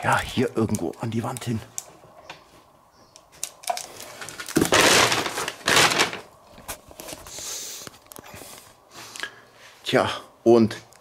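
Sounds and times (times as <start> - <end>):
handling rustling and knocks: 0.0 - 7.3.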